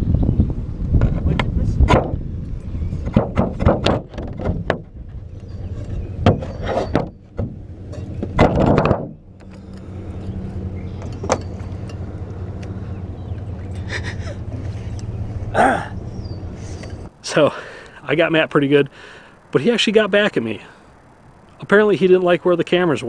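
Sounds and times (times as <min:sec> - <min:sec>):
low motor hum: 0:00.0 - 0:18.0
camera mount knocking and rattling: 0:05.8 - 0:09.6, 0:11.0 - 0:12.0.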